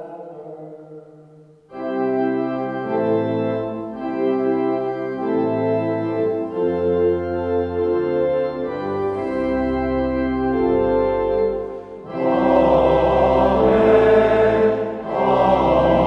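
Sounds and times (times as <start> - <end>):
person chanting: 0.0 - 1.5, 12.0 - 16.0
church organ chords: 1.6 - 16.0.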